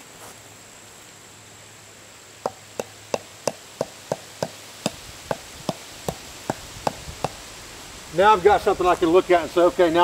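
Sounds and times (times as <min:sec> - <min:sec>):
insect trill: 0:00.0 - 0:10.0
tent stake tapped into ground: 0:02.4 - 0:07.5.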